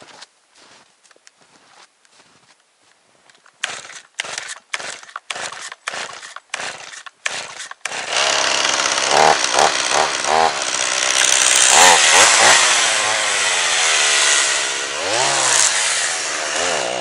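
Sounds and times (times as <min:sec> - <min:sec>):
chainsaw engine revving: 0:03.6 - 0:17.0.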